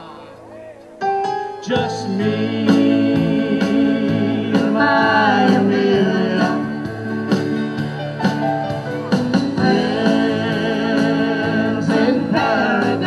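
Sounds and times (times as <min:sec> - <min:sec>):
live pop-country band: 0:01.4 - 0:13.0
person singing: 0:01.6 - 0:06.9, 0:09.6 - 0:13.0.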